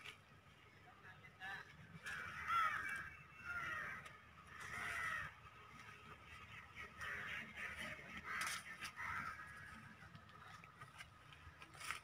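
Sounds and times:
crow cawing: 2.0 - 5.8, 6.8 - 10.0.

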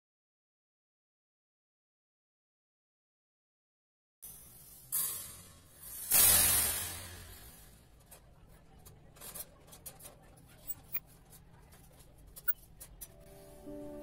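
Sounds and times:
hiss: 4.3 - 7.8.

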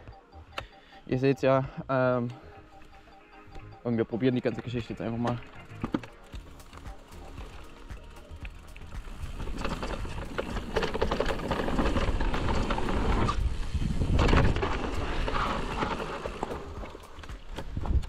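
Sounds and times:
bike rattling over dirt trail: 5.2 - 18.0.

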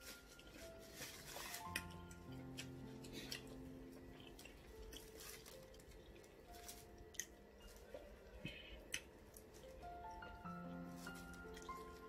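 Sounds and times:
soft background music: 0.0 - 12.0
wet chewing: 1.3 - 10.8.

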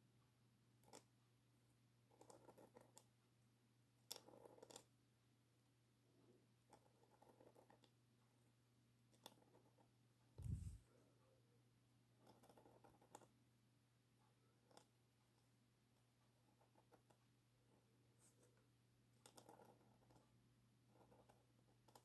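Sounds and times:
pen nib scratching on paper: 2.1 - 3.1, 6.6 - 7.9, 9.1 - 10.8, 12.2 - 13.3, 19.2 - 20.3, 20.9 - 22.0.

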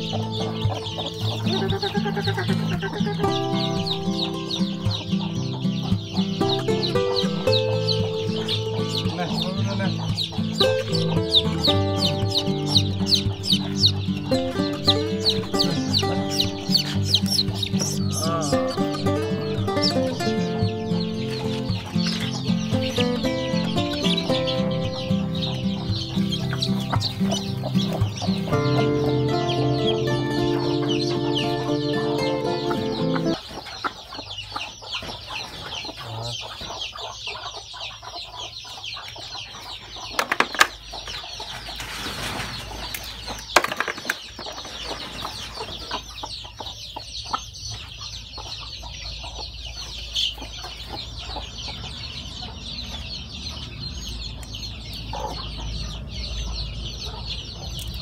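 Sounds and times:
music playing: 0.0 - 33.4
chicks peeping: 0.0 - 58.0.

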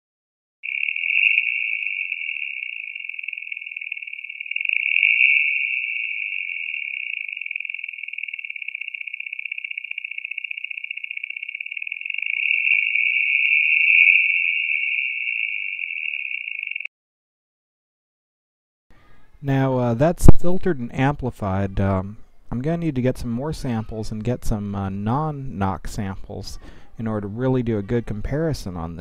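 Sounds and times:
chirping squeal: 0.6 - 16.9.

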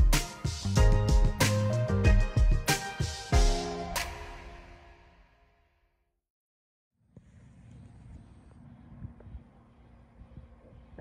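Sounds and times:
background music with drum beat: 0.0 - 4.6.

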